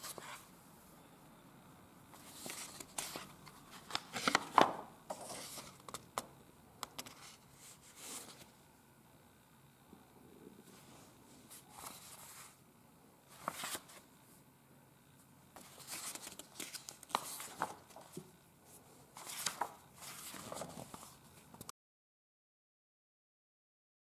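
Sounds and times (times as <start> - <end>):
paper pages turning: 2.2 - 8.5, 11.5 - 12.6, 13.3 - 14.0, 15.6 - 21.7.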